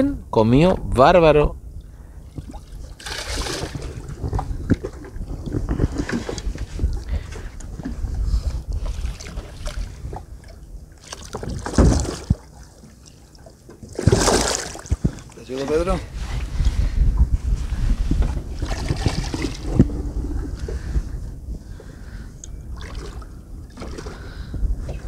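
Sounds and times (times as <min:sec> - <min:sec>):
wind rumble on microphone: 0:00.0 - 0:12.6, 0:13.8 - 0:25.0
fish splashing in water: 0:02.3 - 0:04.1, 0:11.0 - 0:15.2.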